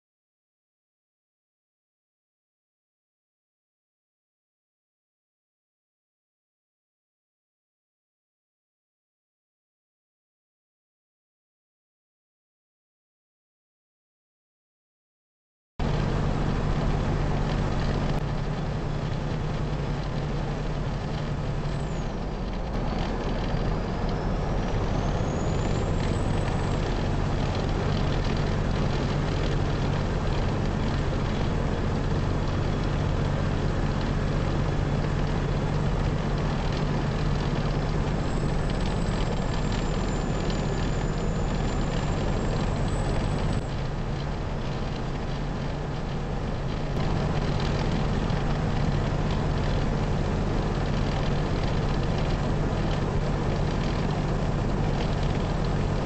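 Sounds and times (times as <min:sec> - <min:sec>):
diesel truck engine droning: 0:15.8 - 0:56.0
road and wind noise: 0:15.8 - 0:56.0.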